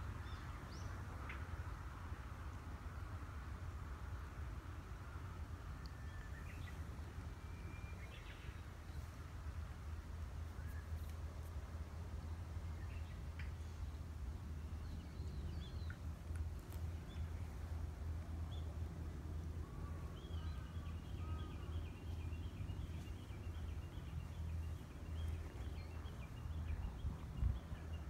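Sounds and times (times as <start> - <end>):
steady low rumble: 1.9 - 28.0
lower bird calls: 19.6 - 26.8.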